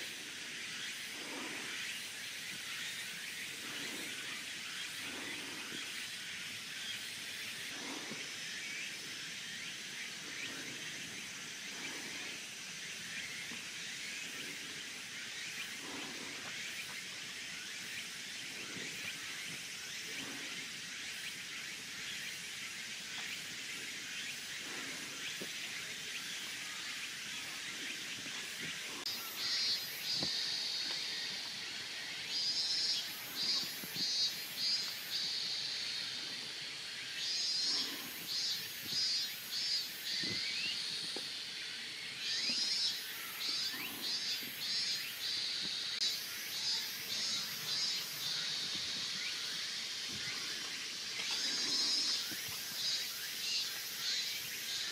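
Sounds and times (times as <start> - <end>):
insects chirping rapidly: 0.0 - 54.9
insects droning: 0.0 - 54.9.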